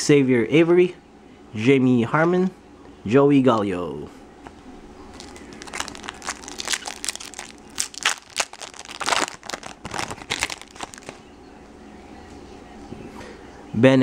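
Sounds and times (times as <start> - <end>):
foil wrapper crinkling: 5.1 - 11.2.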